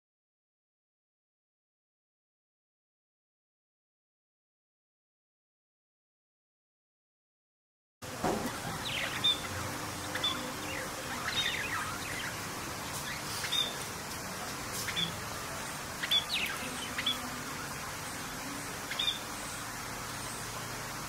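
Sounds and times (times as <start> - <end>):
background hiss: 8.0 - 21.0
budgerigars chirping: 8.5 - 20.6.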